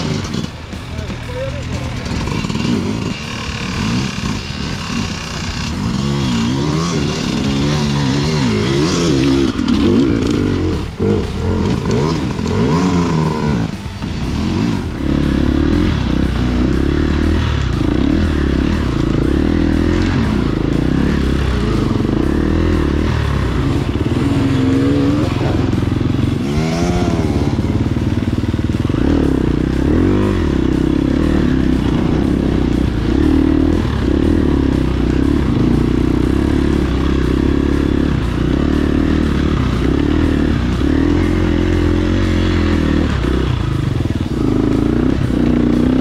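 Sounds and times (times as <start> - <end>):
off-road vehicle engine revving: 0.0 - 46.0.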